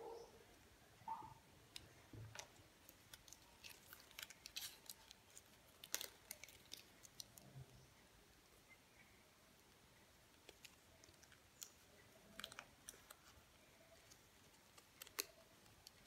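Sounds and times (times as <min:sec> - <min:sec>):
paper sticker sheet crinkling: 0:01.7 - 0:07.7, 0:10.3 - 0:16.0.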